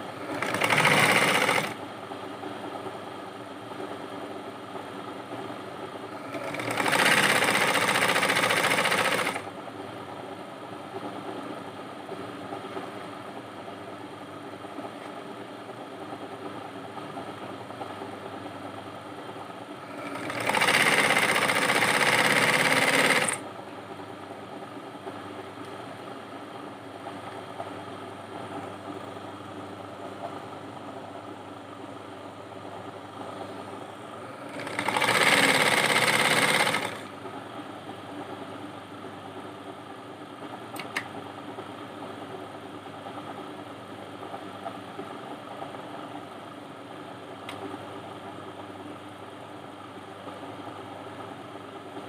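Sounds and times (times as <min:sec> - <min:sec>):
steady hum: 0:00.0 - 0:52.0
sewing machine stitching: 0:00.1 - 0:01.8, 0:06.1 - 0:09.5, 0:19.8 - 0:23.4, 0:34.3 - 0:37.1.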